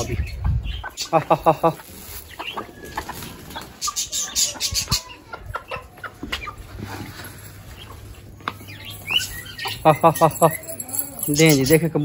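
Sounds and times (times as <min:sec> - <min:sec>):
chickens clucking softly: 0:00.0 - 0:08.8.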